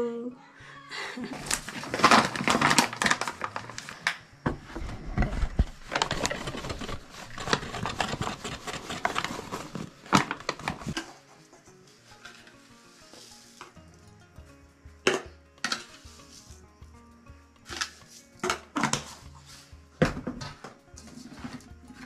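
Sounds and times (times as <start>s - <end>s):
faint background music: 0.0s - 22.0s
packet crinkling and rustling: 1.3s - 4.2s, 4.8s - 11.2s.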